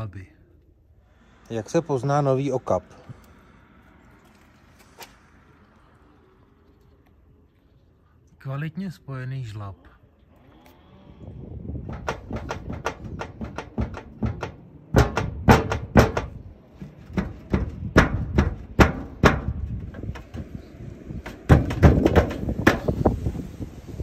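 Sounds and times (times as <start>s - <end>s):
metal roofing sheets clattering: 11.9s - 23.2s.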